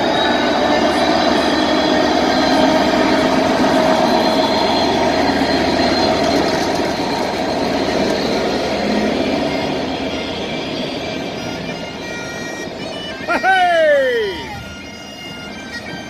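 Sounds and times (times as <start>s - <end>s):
train engine droning: 0.0s - 16.0s.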